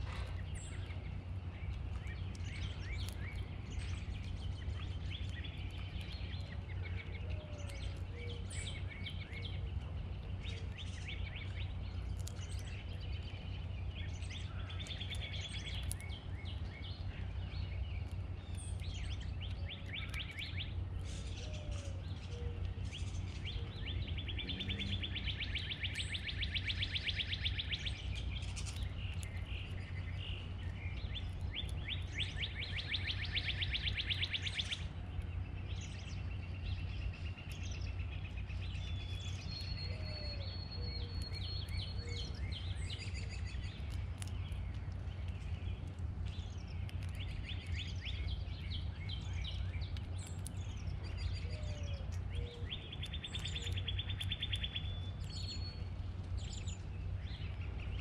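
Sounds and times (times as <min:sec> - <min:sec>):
low rumble: 0:00.0 - 0:26.2
bird chirps: 0:00.0 - 0:58.0
songbird trill: 0:00.0 - 0:58.0.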